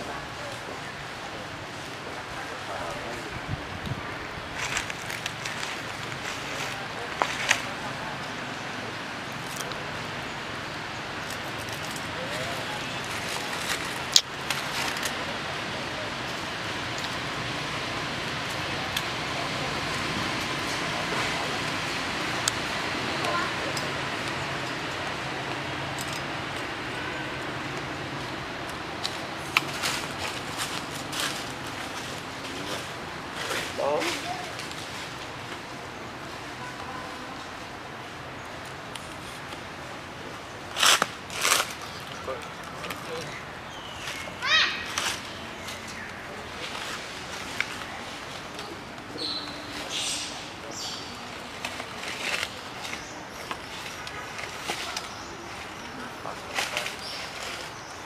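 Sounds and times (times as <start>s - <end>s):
faint distant voices: 0.0s - 58.0s
outdoor background hiss: 0.0s - 58.0s.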